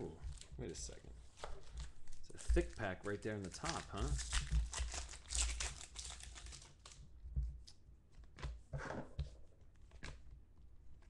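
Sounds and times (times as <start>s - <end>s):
cards rustling and clicking: 1.4s - 7.0s
foil wrapper crinkling: 1.6s - 7.0s.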